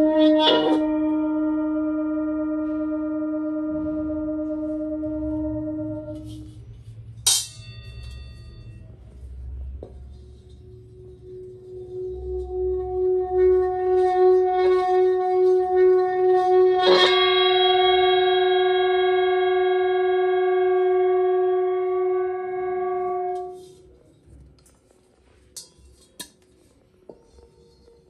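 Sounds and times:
singing bowl struck ringing: 0.0s - 6.6s, 7.3s - 9.0s, 10.2s - 23.7s
singing bowl rubbed rim tone: 0.0s - 24.3s, 25.7s - 28.0s.

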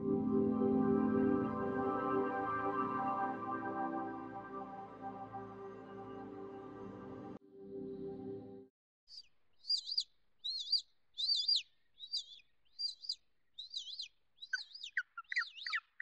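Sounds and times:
bird chirping: 9.1s - 16.0s.

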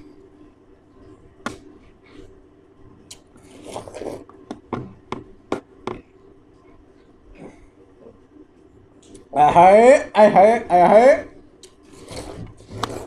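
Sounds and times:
faint steady hum: 0.0s - 13.0s
wet biting and sucking: 3.1s - 4.4s.

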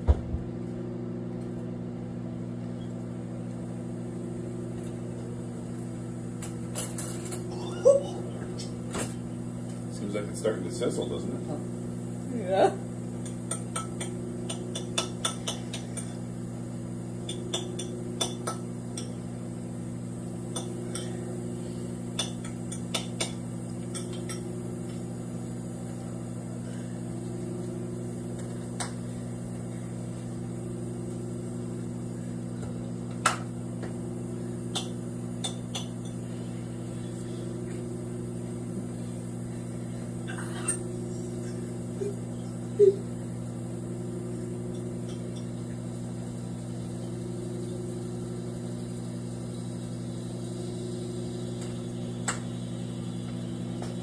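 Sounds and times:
microwave oven humming: 0.0s - 54.0s
apple sizzling and popping: 13.1s - 19.6s, 20.2s - 25.2s, 26.7s - 36.4s, 44.1s - 54.0s.

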